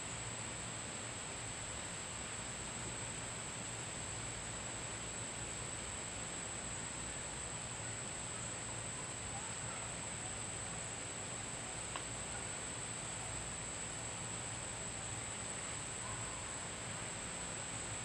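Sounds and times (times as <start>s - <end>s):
faint click: 11.9s - 12.1s.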